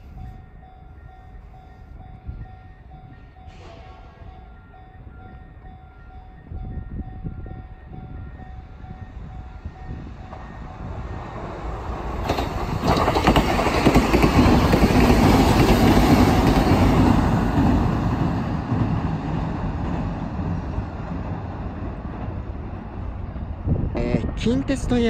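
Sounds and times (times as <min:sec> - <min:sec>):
electric train passing: 0:00.0 - 0:25.0
train wheel clacks: 0:09.8 - 0:22.4.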